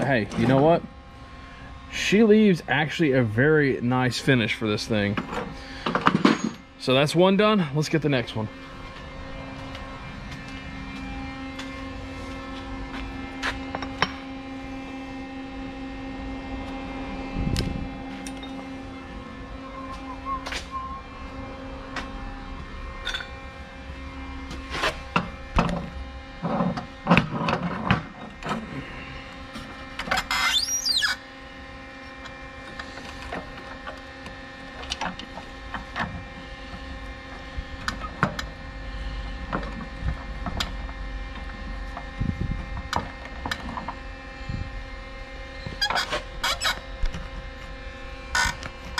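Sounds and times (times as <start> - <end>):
steady hum: 0.0 - 48.9
short rising squeak: 19.6 - 21.2, 30.2 - 31.2.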